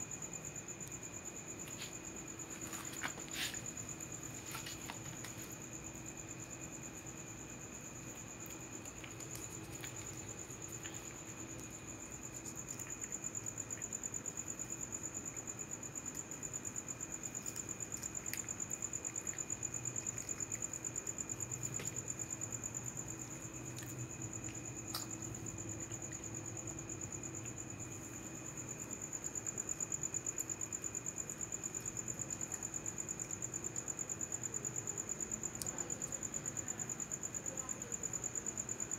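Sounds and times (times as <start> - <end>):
crickets chirping: 0.0 - 38.9.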